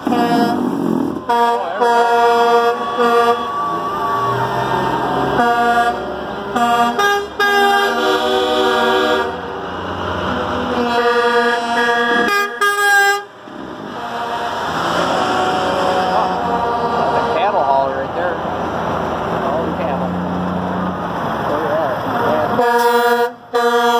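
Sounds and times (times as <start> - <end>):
truck air horns blasting: 0.0 - 18.3, 22.2 - 23.9
passing trucks road noise: 0.0 - 23.9.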